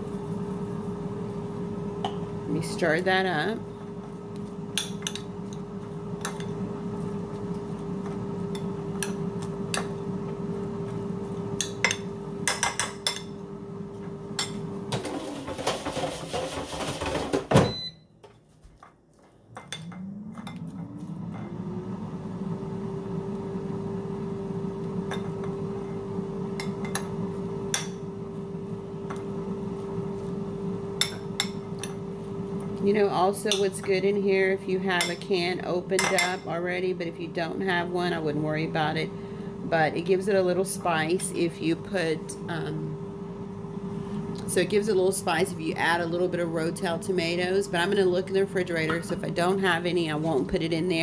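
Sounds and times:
steady mechanical hum: 0.0 - 51.0
rising whine: 19.4 - 25.0.

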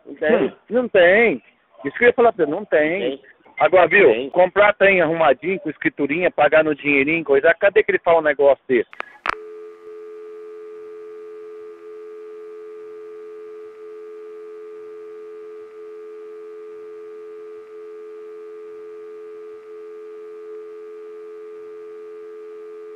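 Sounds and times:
two-note telephone line tone: 9.3 - 22.9.

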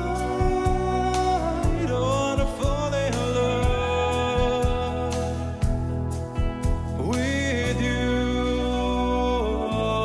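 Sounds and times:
male singer holding long note: 0.0 - 5.8, 7.0 - 10.0
live band with guitars: 0.0 - 9.9.

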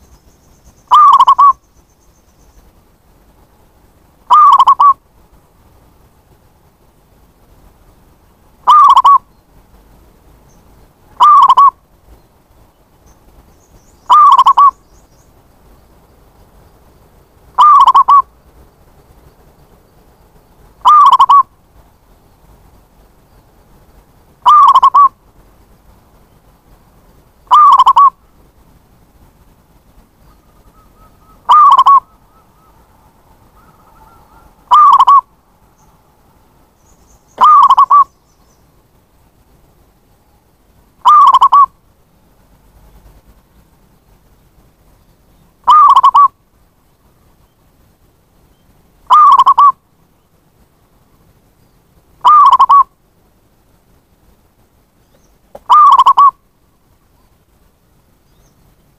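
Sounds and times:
dove cooing: 0.9 - 1.6, 4.3 - 5.0, 8.6 - 9.2, 11.2 - 11.8, 14.1 - 14.7, 17.6 - 18.3, 20.8 - 21.5, 24.4 - 25.2, 27.5 - 28.2, 30.4 - 32.9, 33.5 - 35.3, 37.4 - 38.1, 41.0 - 41.7, 45.7 - 46.3, 49.1 - 49.8, 52.2 - 52.9, 55.5 - 56.4.

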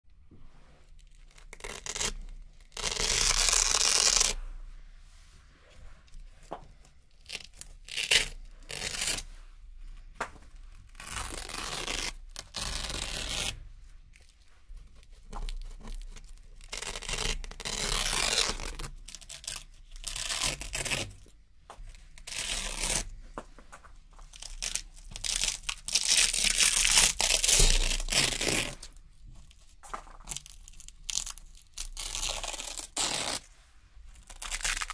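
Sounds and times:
velcro tape ripping: 1.2 - 4.4, 7.2 - 9.3, 10.9 - 13.6, 15.3 - 21.3, 22.2 - 23.2, 24.2 - 33.5, 34.2 - 34.9.

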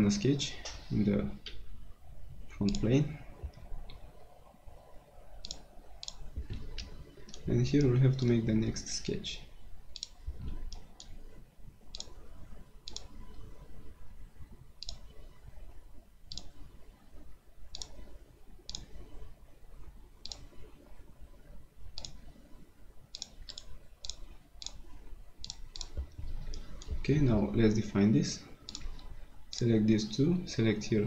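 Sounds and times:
faint low room hum: 0.0 - 31.0
computer mouse clicking: 2.6 - 2.9, 5.4 - 8.5, 9.9 - 11.3, 11.9 - 13.8, 14.8 - 15.3, 16.3 - 16.8, 17.7 - 19.3, 20.2 - 20.7, 21.9 - 22.5, 23.1 - 27.0, 28.6 - 29.8.

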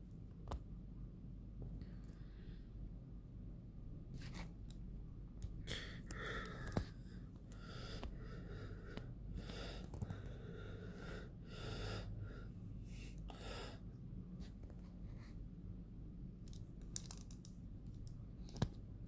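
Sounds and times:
person breathing close up: 5.6 - 14.0.

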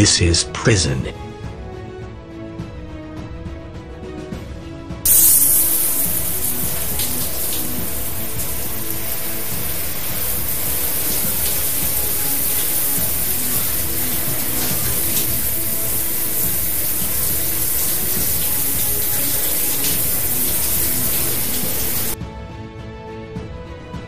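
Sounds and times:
background music: 0.0 - 24.0
shower spray hissing: 5.1 - 22.2.

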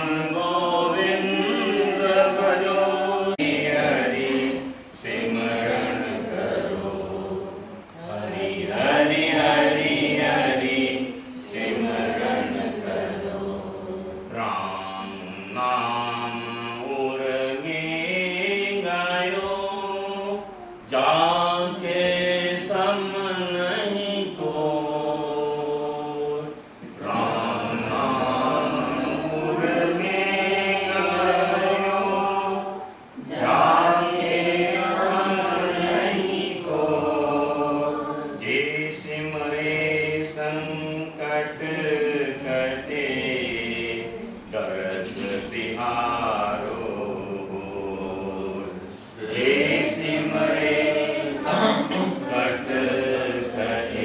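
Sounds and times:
voices chanting devotional song: 0.0 - 54.0.

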